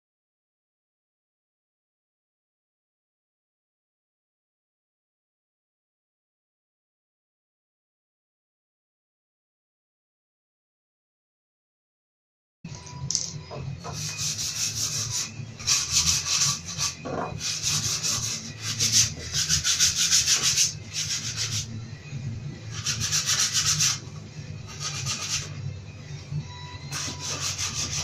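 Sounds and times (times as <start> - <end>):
steady low hum: 12.7 - 28.0
hand sanding plywood: 13.9 - 21.7, 22.7 - 24.0, 24.7 - 25.5, 26.9 - 28.0.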